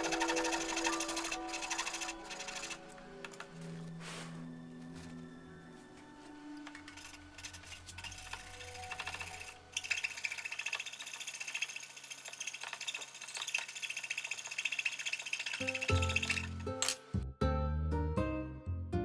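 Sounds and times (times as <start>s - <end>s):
coping saw cutting wood: 0.0s - 3.3s, 6.6s - 16.6s.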